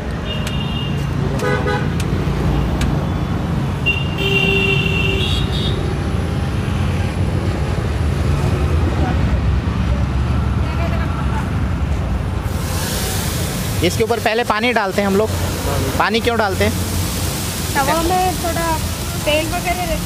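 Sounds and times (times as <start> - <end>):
street traffic rumbling: 0.0 - 20.0
vehicle horns honking: 0.2 - 2.0, 3.8 - 6.0.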